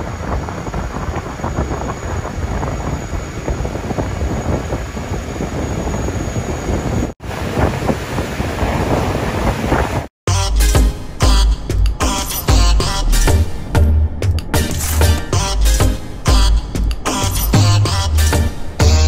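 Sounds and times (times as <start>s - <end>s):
wind buffeting microphone: 0.0s - 10.1s.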